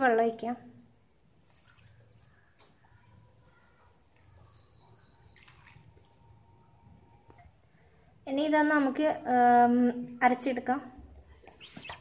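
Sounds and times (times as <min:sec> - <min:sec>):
water trickling into steel jar: 0:01.3 - 0:07.4.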